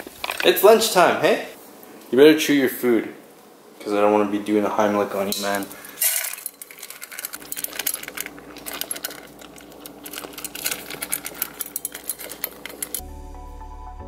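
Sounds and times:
dog crunching kibble: 6.1s - 13.0s.

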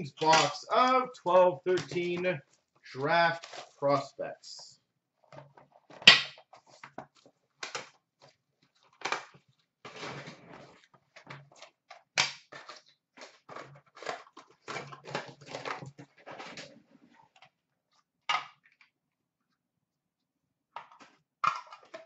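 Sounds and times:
cardboard and plastic rustling: 1.6s - 3.8s, 5.1s - 18.1s.

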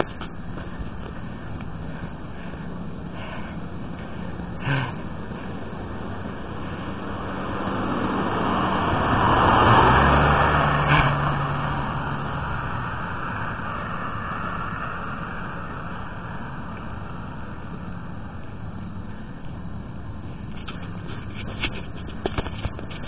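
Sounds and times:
street noise: 0.0s - 23.0s
car driving past: 3.2s - 18.0s.

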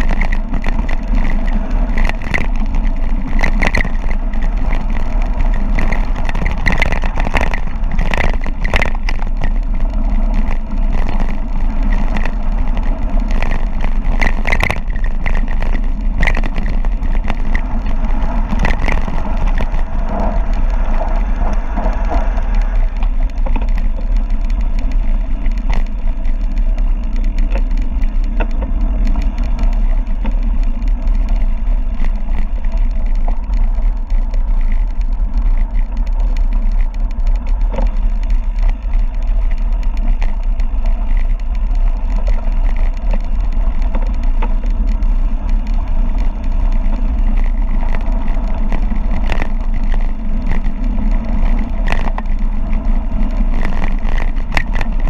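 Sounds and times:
bike clicks and rattles: 0.0s - 55.0s
wind buffeting microphone: 0.0s - 55.0s.

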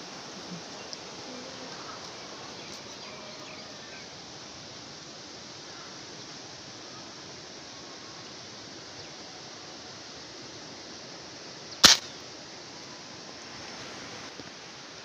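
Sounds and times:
faint bird chirps: 0.0s - 4.2s
light rain hissing: 0.0s - 15.0s.

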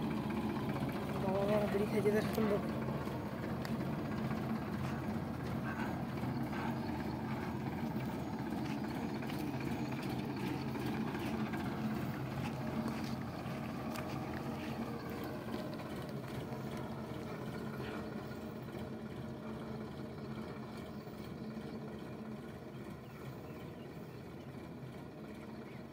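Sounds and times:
tractor diesel engine running: 0.0s - 25.9s.

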